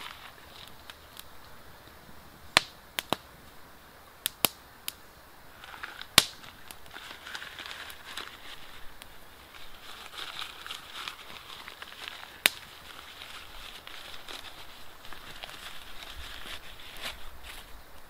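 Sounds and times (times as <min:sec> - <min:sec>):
sharp pops of fire: 0:00.0 - 0:03.6, 0:04.2 - 0:06.9, 0:12.3 - 0:13.1
wood fire crackling: 0:00.0 - 0:18.0.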